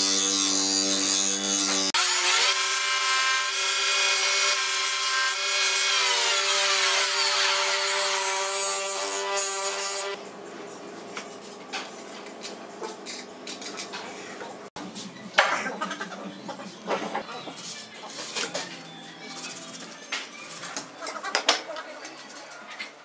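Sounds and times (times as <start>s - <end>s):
bench grinder whine: 0.0s - 10.2s
grinding wheel rasping steel: 0.0s - 10.2s.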